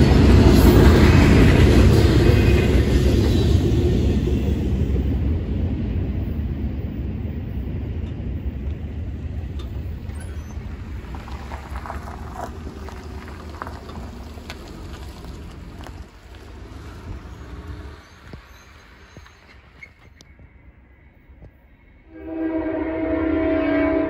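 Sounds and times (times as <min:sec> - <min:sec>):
train rumble: 0:00.0 - 0:24.0
car driving over crossing: 0:08.0 - 0:20.1
clicks and squeaks: 0:09.5 - 0:16.5, 0:17.1 - 0:20.5.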